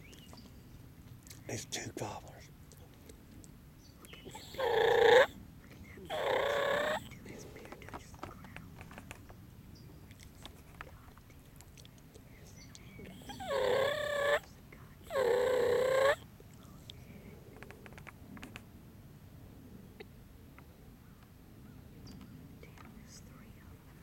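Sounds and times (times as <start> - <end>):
turkeys gobbling: 6.1 - 7.1.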